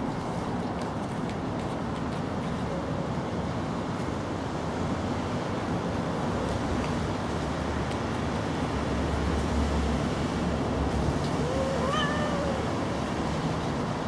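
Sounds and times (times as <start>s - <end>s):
cat meowing: 11.4s - 12.7s.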